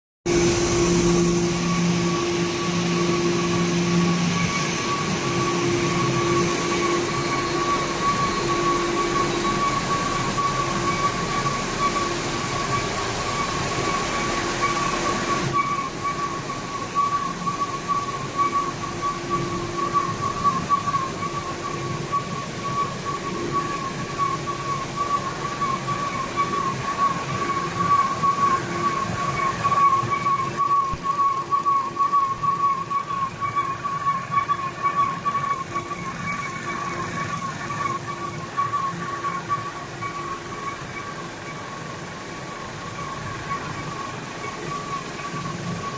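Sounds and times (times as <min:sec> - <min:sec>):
low pulsing hums: 0:00.3 - 0:15.5
constant high whine: 0:00.3 - 0:45.9
printing presses running: 0:00.3 - 0:45.9.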